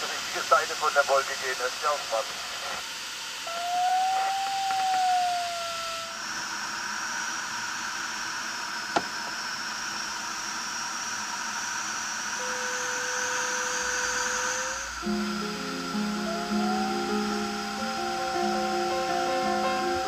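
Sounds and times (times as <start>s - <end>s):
airflow hiss: 0.0s - 20.0s
variometer audio tone: 12.4s - 20.0s.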